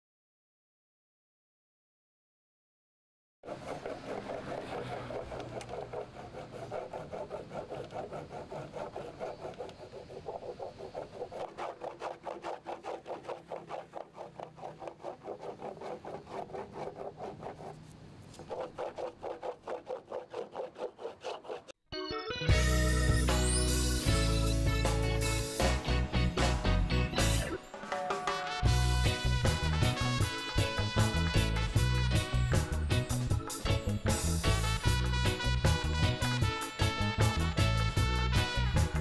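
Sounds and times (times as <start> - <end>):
wax rubbing on surfboard: 3.4 - 21.8.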